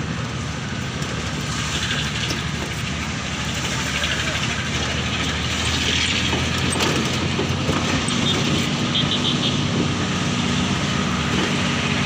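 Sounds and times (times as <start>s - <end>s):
bus engine running: 0.0s - 12.0s
wind and road noise: 0.0s - 12.0s.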